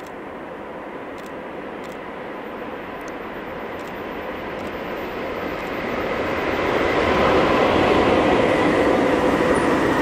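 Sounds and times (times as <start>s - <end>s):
faint steady tone: 0.0s - 7.4s
freight train rumbling: 0.0s - 10.0s.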